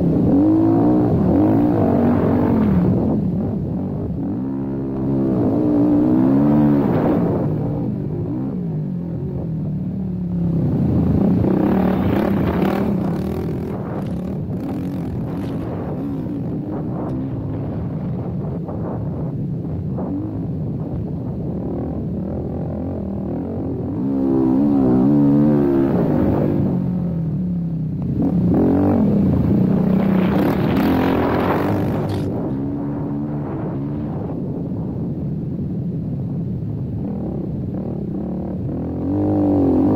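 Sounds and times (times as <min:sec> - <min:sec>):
quad bike engine under throttle: 0:00.0 - 0:27.3, 0:27.9 - 0:33.4, 0:36.8 - 0:39.9
quad engine revving hard: 0:11.5 - 0:16.5, 0:30.0 - 0:32.3.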